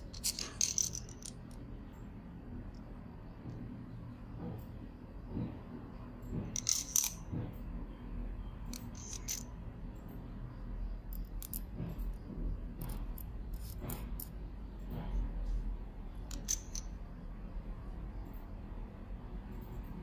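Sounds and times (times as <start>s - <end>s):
flashlight parts clicking and clinking: 0.2s - 1.4s.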